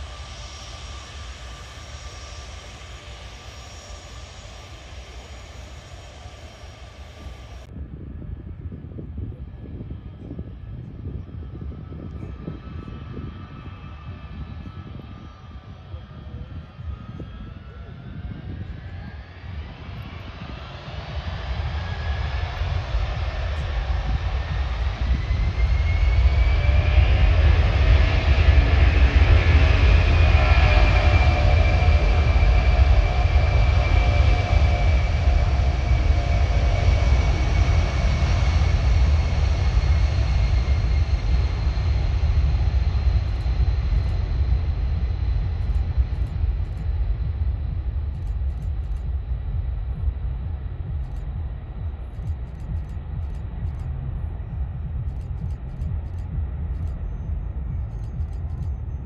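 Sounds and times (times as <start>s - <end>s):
jet engine hiss: 0.0s - 7.7s
jet engine whine rising: 0.0s - 59.0s
jet engines rumbling: 0.0s - 59.0s.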